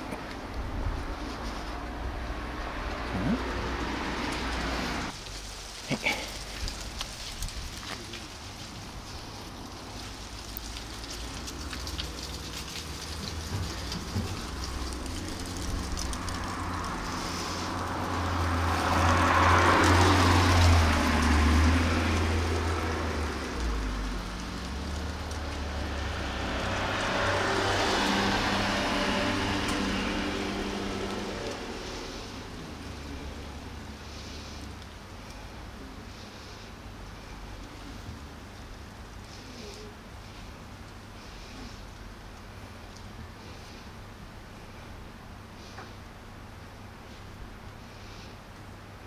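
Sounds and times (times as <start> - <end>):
vehicle passing by: 0.0 - 5.2, 9.0 - 38.7.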